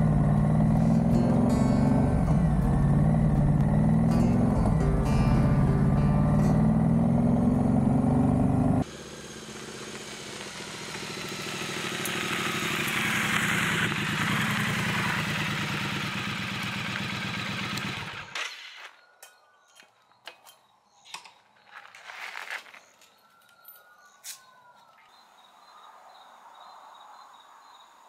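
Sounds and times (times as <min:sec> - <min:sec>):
motorcycle engine accelerating: 0:00.0 - 0:18.4
tyres rolling over gravel: 0:21.6 - 0:23.1.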